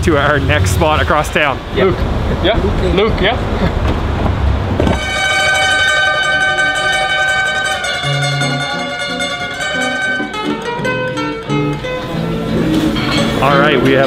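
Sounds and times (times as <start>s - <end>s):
plucked string music: 5.0s - 14.0s.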